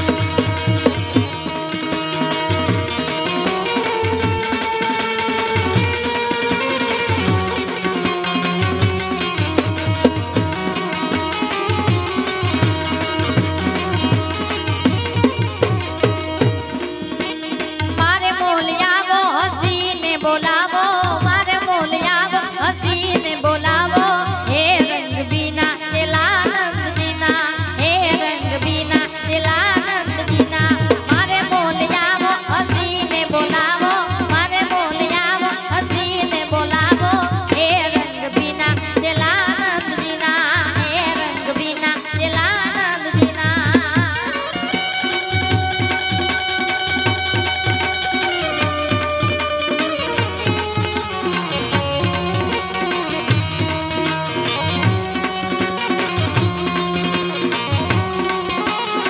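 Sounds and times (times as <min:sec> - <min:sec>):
hand drum beat: 0:00.0 - 0:06.4, 0:07.0 - 0:18.9, 0:21.0 - 0:59.0
banjo melody: 0:47.0 - 0:59.0.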